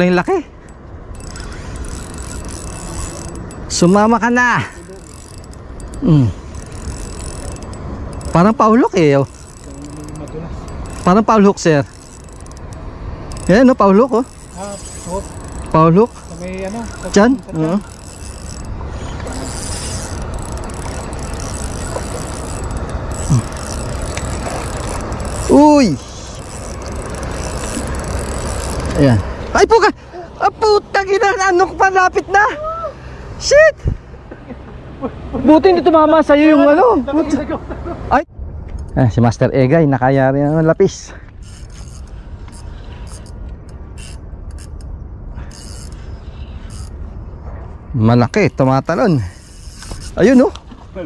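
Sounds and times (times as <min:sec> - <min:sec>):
fishing reel cranking: 0:00.7 - 0:29.3, 0:40.5 - 0:47.1, 0:48.0 - 0:50.6.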